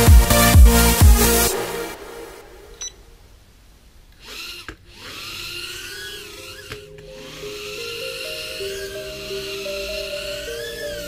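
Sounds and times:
mini drone motors whining: 4.2 - 11.0.

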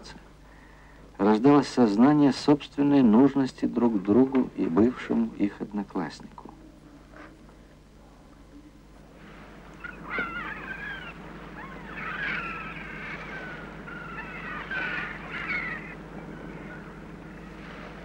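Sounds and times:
low steady hum: 0.0 - 18.0
gulls calling: 9.0 - 18.0.

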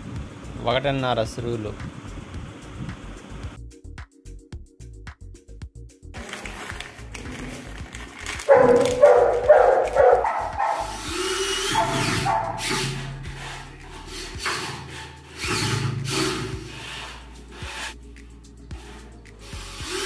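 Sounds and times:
cordless drill drilling into wood: 10.8 - 12.9, 15.4 - 16.9, 19.4 - 20.0.

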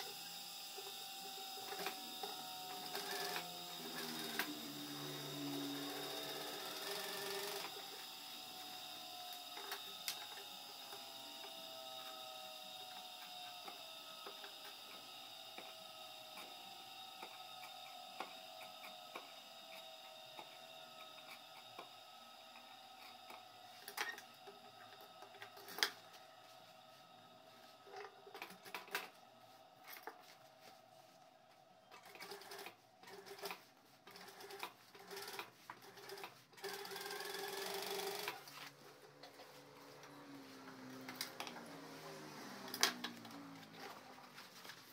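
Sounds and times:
sewing machine stitching: 0.0 - 26.1, 31.9 - 39.3
faint whine sliding down: 0.0 - 34.0, 37.6 - 44.9.

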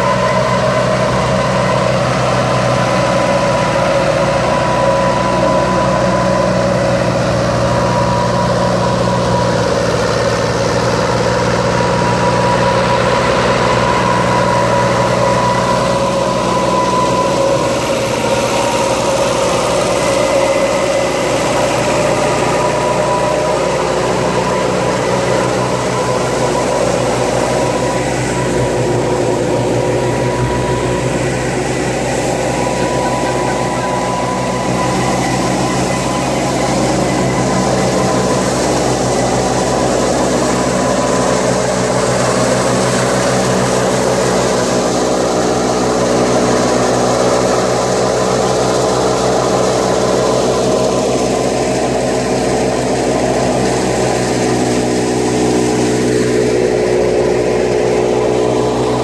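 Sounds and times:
thresher machine drone with whine: 0.0 - 59.0
tractor diesel engine running: 0.0 - 59.0.

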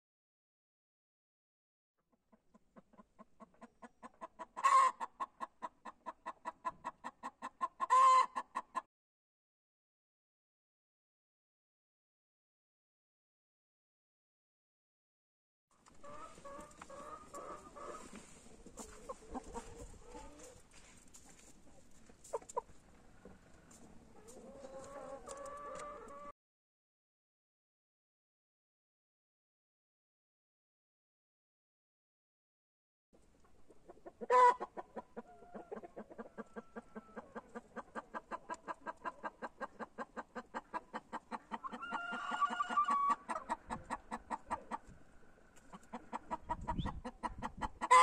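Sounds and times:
hen clucking: 2.5 - 8.8, 15.9 - 20.6, 21.3 - 23.4, 24.2 - 26.3, 33.8 - 44.9, 45.6 - 48.0.

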